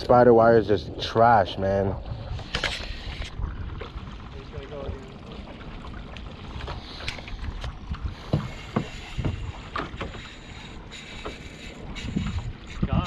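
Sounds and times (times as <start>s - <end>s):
wind buffeting microphone: 0.0s - 13.0s
knocks and slaps on boat: 6.6s - 10.4s.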